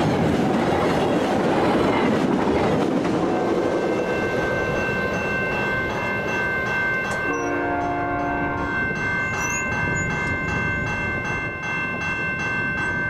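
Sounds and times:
train rumble: 0.0 - 13.0
railroad crossing bell ringing: 3.2 - 13.0
train horn blast: 7.2 - 8.8.

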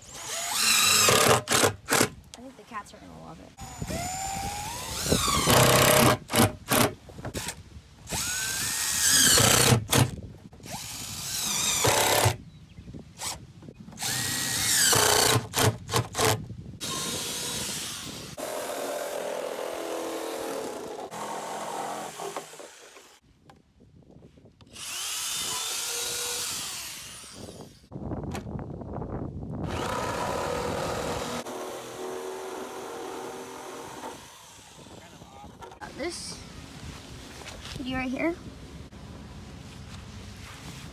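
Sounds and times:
cordless drill motor bursts: 0.0 - 2.1, 3.6 - 12.4, 14.0 - 23.2, 24.7 - 27.8, 29.6 - 35.0
jigsaw cutting plastic: 0.2 - 2.1, 4.9 - 7.6, 8.2 - 10.1, 10.9 - 12.4, 14.0 - 23.0.

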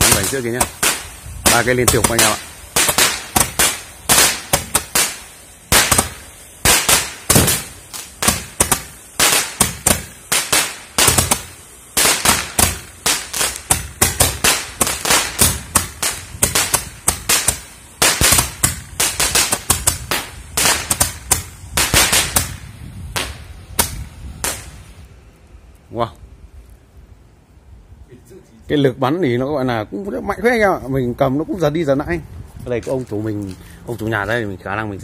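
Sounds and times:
firework pops and bangs: 0.0 - 25.0.

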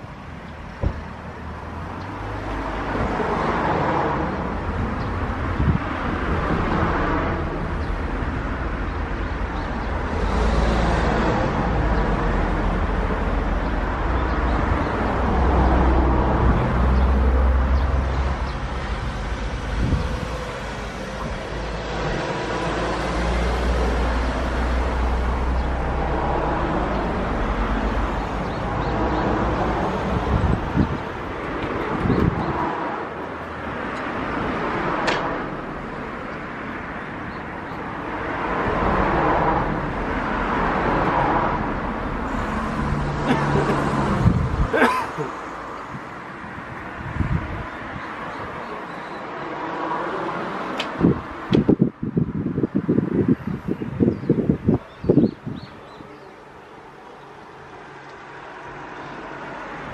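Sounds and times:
road traffic roar: 0.0 - 59.9.

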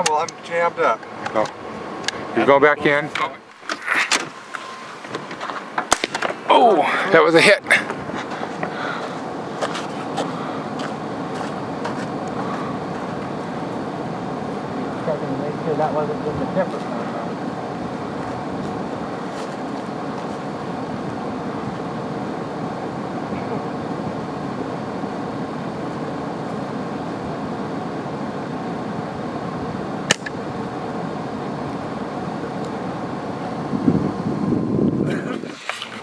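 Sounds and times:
vehicle engine idling: 6.4 - 34.4.

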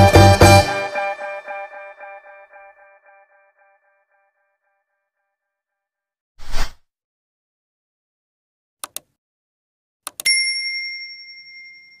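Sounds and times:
mouse clicks: 8.8 - 9.2, 10.1 - 10.3
notification bell ding: 10.2 - 12.0.

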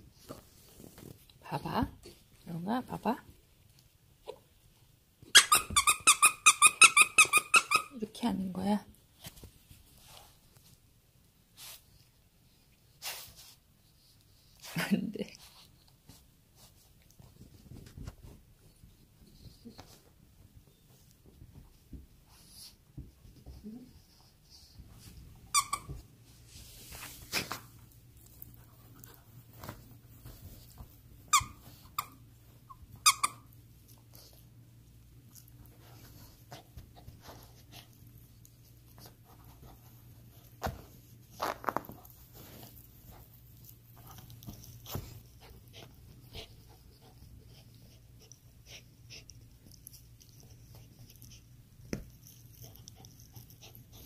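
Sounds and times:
squeaky toy squeaking: 5.3 - 8.0, 25.5 - 25.9, 33.0 - 33.4.

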